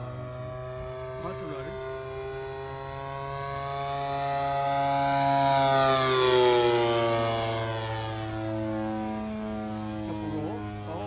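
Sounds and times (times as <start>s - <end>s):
model plane engine flying past: 0.0s - 11.0s.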